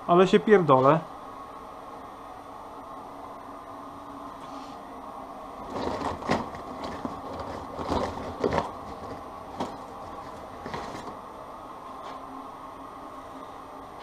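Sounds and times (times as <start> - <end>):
steady hum: 0.0 - 14.0
wire scraps rustling and clinking: 5.6 - 11.2.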